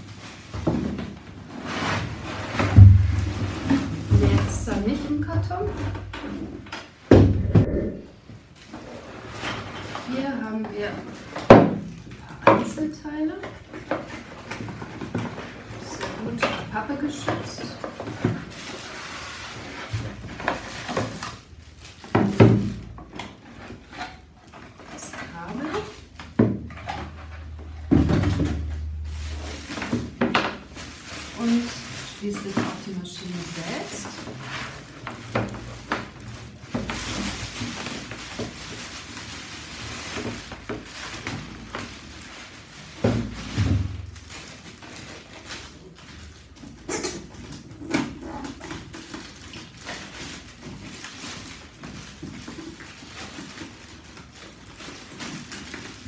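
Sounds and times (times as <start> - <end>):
plastic bag crinkling: 0.0 - 7.1, 7.7 - 56.0
cardboard rustling and scraping: 0.0 - 56.0
dull thumps: 2.5 - 6.4, 7.1 - 8.1
handling knocks: 2.5 - 6.4.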